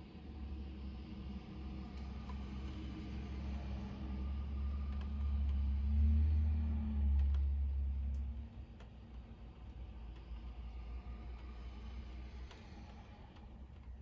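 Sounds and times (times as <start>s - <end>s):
faint ticks: 7.0s - 14.0s.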